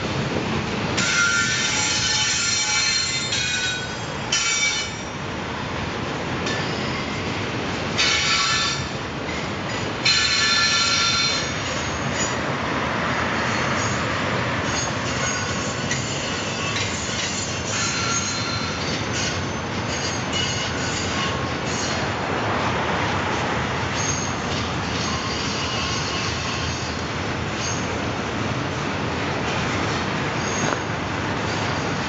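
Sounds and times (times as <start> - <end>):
freight train wheels rumbling: 0.0 - 32.0
metallic wheel squeals: 9.7 - 12.4, 14.7 - 22.0, 24.0 - 27.0, 27.6 - 27.9, 30.4 - 30.9.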